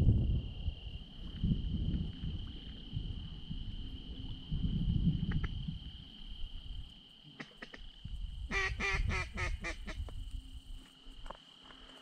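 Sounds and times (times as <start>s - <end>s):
wind rumble on microphone: 0.0s - 7.1s, 7.7s - 11.3s
insect trill: 0.0s - 12.0s
duck quacks: 8.5s - 10.0s.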